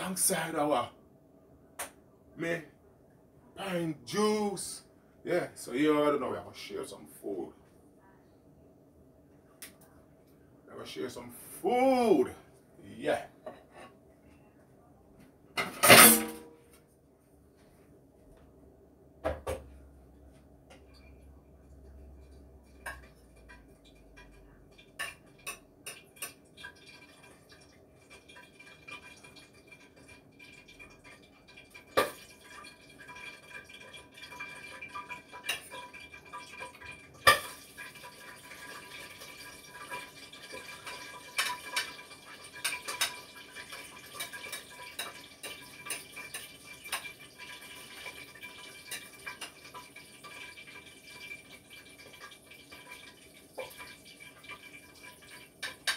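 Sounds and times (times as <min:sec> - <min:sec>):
dishes and utensils clattering: 0:13.4 - 0:14.0, 0:15.6 - 0:16.6, 0:22.1 - 0:55.9.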